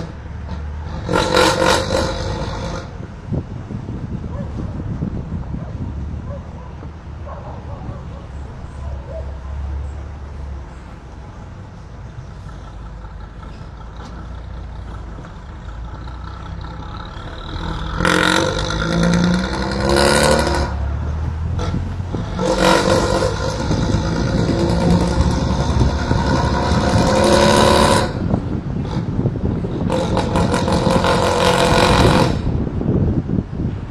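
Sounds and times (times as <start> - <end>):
bus diesel engine pulling under load: 0.0 - 33.9.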